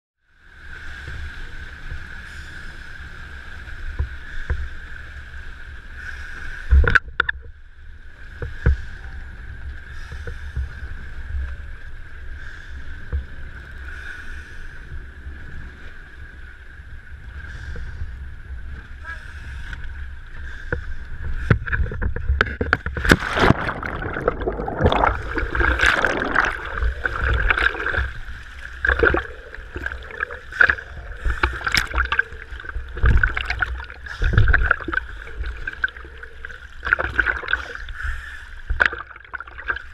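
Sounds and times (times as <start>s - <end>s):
steady low rumble: 14.8s - 39.9s
sea water slapping and splashing: 18.7s - 39.9s.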